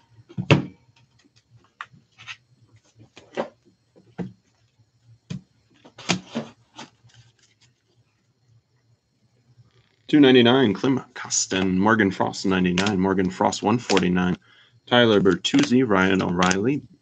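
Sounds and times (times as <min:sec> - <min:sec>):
cards in plastic sleeves clicking: 0:12.7 - 0:13.0, 0:13.8 - 0:14.2, 0:15.1 - 0:16.7.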